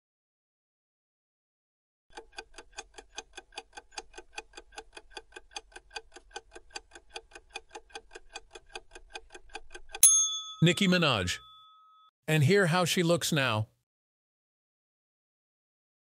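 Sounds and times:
clock ticking sound effect: 2.1s - 11.5s.

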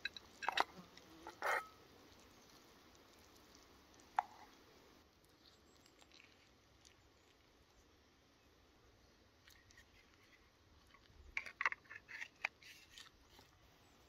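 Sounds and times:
spoon scooping soft ticks: 2.1s - 4.6s.

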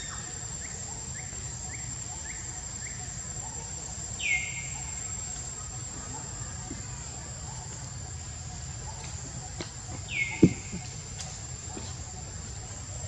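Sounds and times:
insect drone: 0.0s - 13.0s
bird chirping: 9.9s - 10.9s.

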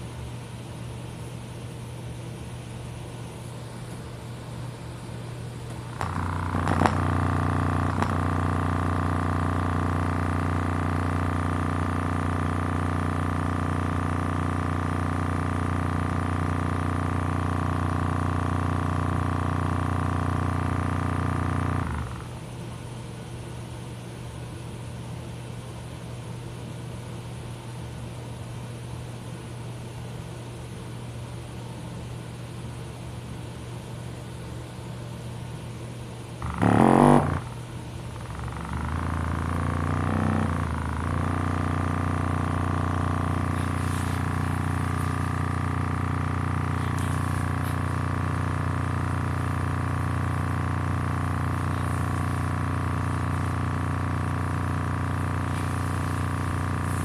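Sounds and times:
speaker playing low bass tone: 5.9s - 22.3s, 36.4s - 37.6s, 38.2s - 57.0s.

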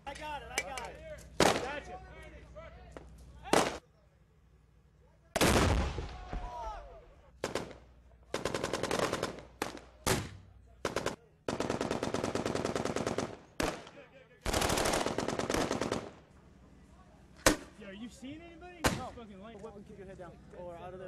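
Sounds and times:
automatic gunfire: 7.4s - 16.2s.

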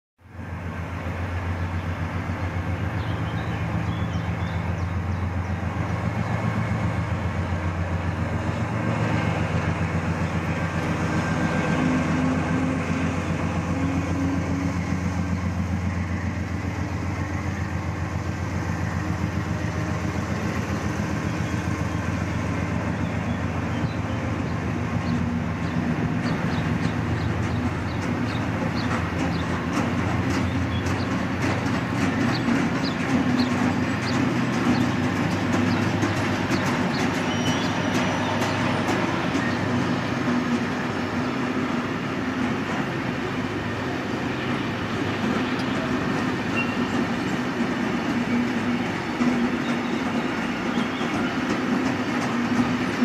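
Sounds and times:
diesel locomotive engine drone: 0.2s - 53.0s
wagons clicking over rails: 1.0s - 53.0s
locomotive whistle: 36.9s - 39.8s, 45.5s - 47.1s, 48.3s - 51.6s.

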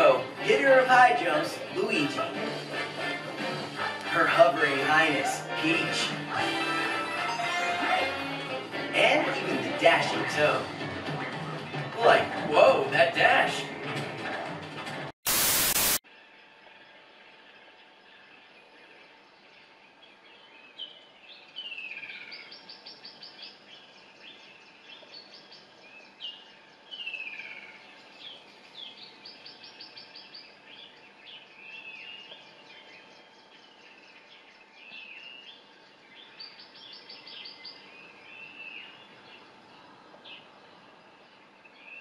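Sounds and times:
steady hiss: 15.3s - 16.0s.

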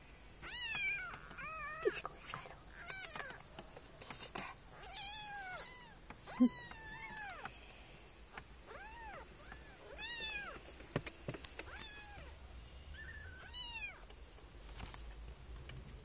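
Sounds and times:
kitten mewing: 4.8s - 7.5s.

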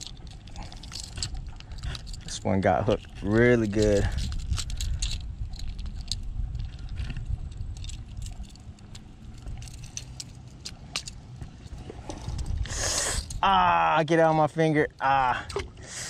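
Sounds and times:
metal fishing hooks jingling: 0.0s - 13.4s
low rumble: 0.0s - 13.8s.

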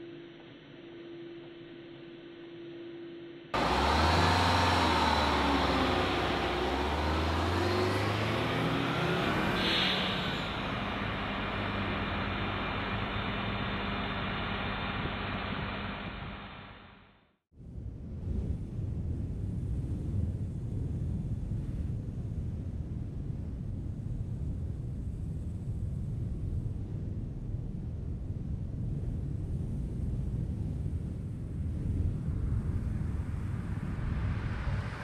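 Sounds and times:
loud rushing noise: 3.6s - 16.8s, 32.6s - 35.0s
vehicle pulling away: 3.6s - 16.8s, 32.4s - 35.0s.

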